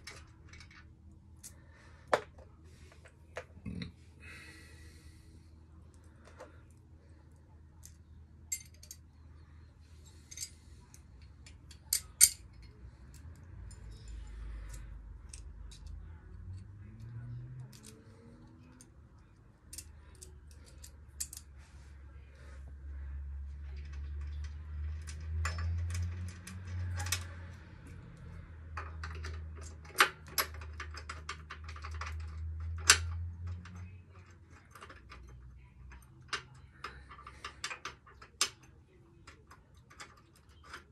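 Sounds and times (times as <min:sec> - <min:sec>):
metal hand tools clinking: 0:08.5 - 0:09.0.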